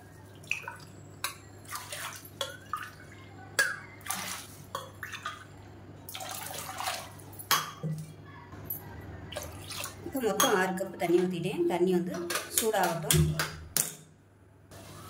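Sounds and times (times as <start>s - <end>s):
water pouring and splashing: 1.6s - 3.0s, 4.0s - 5.4s, 6.1s - 7.2s.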